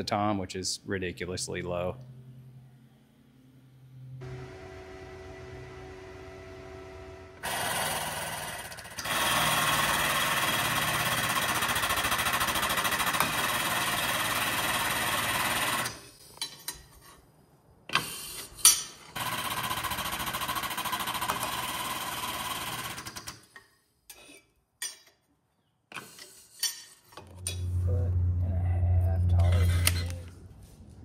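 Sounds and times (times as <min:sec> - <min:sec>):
drill press boring through steel: 0:07.4 - 0:15.9.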